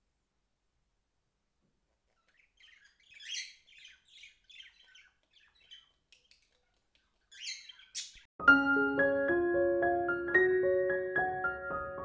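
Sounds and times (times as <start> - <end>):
budgerigar chirping and warbling: 2.1 - 8.3.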